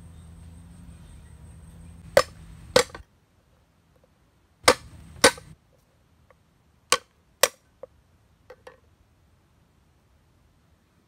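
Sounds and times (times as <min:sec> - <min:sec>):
cleaver chopping on wooden block: 0:02.1 - 0:03.0, 0:04.6 - 0:05.6.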